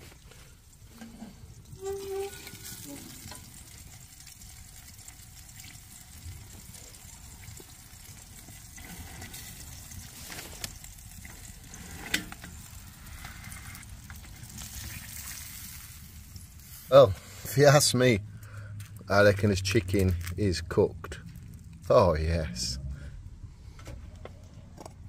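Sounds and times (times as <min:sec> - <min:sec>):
juices sizzling in roasting tray: 0:00.0 - 0:18.0
metal tray scraping and clacking: 0:11.7 - 0:12.6.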